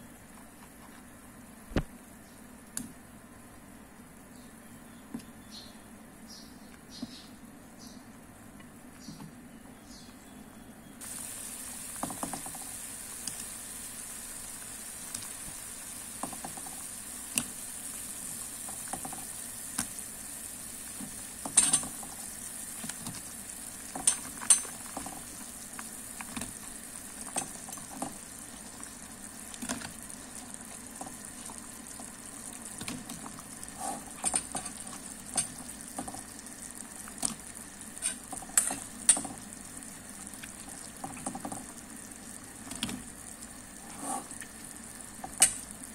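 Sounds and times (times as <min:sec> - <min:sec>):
soup boiling and bubbling: 0:11.0 - 0:45.9.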